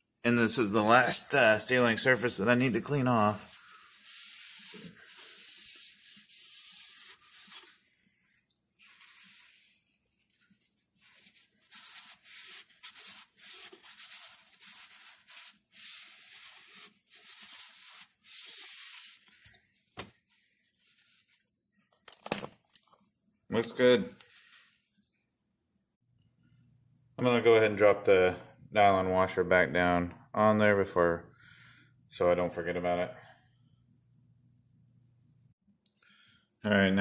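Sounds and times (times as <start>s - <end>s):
towel scrubbing plastic: 0.4s - 21.6s.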